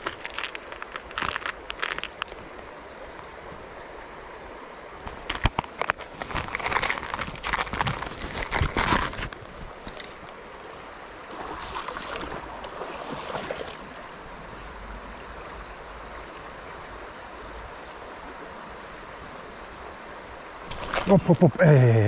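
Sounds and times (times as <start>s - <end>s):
scrapes and rustles: 0.0s - 2.8s, 5.1s - 10.4s
river water over stony bed: 0.0s - 22.0s.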